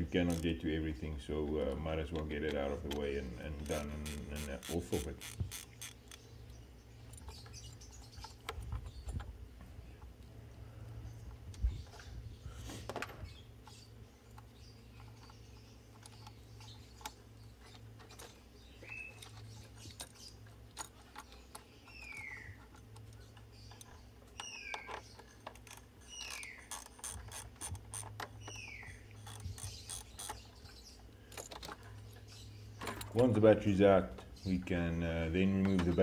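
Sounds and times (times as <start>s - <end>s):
bird whistling: 21.9s - 22.6s.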